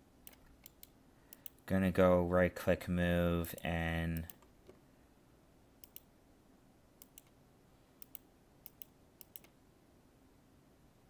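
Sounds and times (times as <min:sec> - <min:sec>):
faint room hiss: 0:00.0 - 0:11.0
computer mouse clicking: 0:00.2 - 0:01.6, 0:05.8 - 0:06.1, 0:07.0 - 0:07.4, 0:08.0 - 0:09.6.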